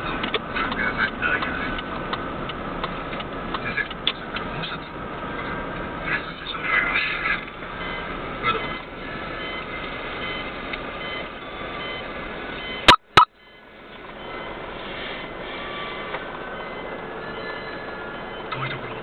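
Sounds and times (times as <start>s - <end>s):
car engine and road noise: 0.0s - 19.0s
faint high beeps: 12.6s - 14.6s, 16.6s - 19.0s
sharp clicks: 12.9s - 13.3s.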